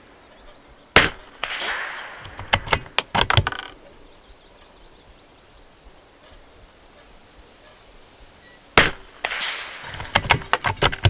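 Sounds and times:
rifle shot: 1.0 - 3.3, 8.8 - 10.8
rifle bolt clicking and rattling: 2.2 - 3.8, 9.8 - 11.0.

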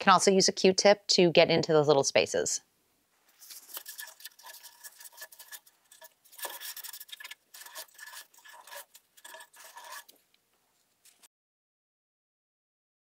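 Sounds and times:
paper towel scrubbing fan blades: 3.4 - 10.2.

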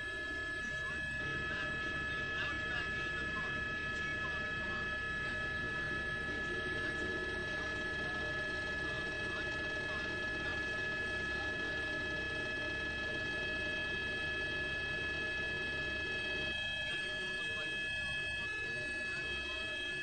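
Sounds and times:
helicopter rotor chatter: 0.0 - 20.0
helicopter turbine whine: 0.0 - 20.0.

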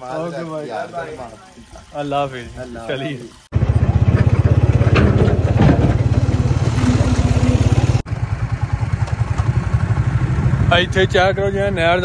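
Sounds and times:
motorcycle engine running: 3.5 - 12.0.

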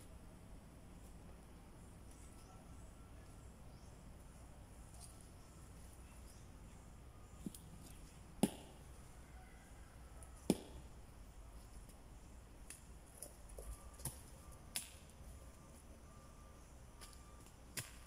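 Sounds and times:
hand tool chopping into soil: 8.4 - 8.8, 10.4 - 10.8, 14.0 - 15.0, 17.0 - 18.0.

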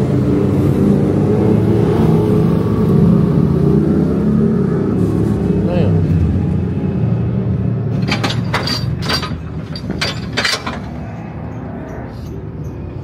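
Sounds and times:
sharp metallic clanks and clicks: 7.9 - 12.8.

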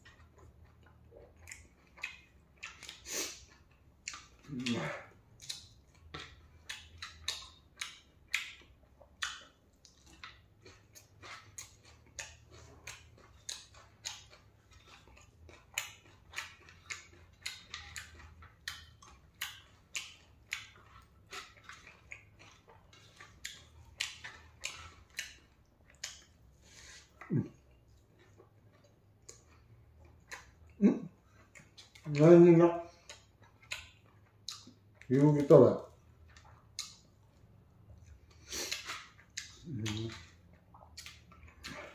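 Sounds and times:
person chewing crunchy food: 0.0 - 41.9
lip smacks: 15.8 - 27.7, 36.3 - 37.2, 38.3 - 41.9
low hum-like vocal sound: 27.2 - 27.6, 39.6 - 40.4.

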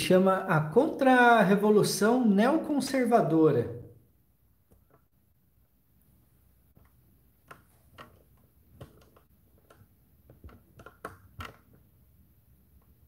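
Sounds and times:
light clicks and taps: 6.7 - 11.9.

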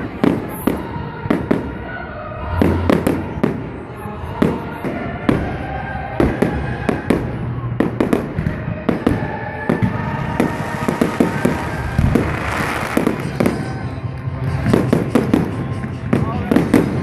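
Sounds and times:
fireworks bursting: 2.4 - 17.0.

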